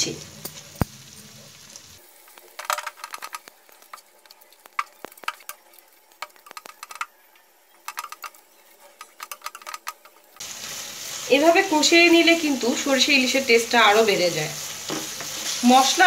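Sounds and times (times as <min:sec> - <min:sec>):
faint sizzle: 0:00.0 - 0:16.0
spatula scraping frying pan: 0:07.9 - 0:11.4, 0:14.5 - 0:16.0.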